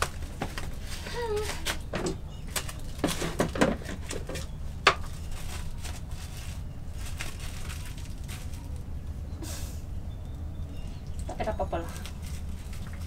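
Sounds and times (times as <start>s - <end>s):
low steady hum: 0.0s - 13.0s
plastic bag crinkling: 5.0s - 9.0s, 11.1s - 13.0s.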